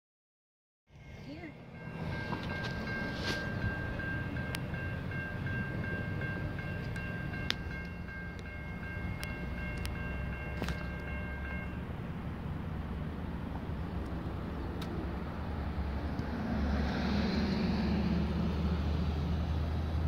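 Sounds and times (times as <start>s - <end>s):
railroad crossing bell dinging: 0.9s - 12.4s.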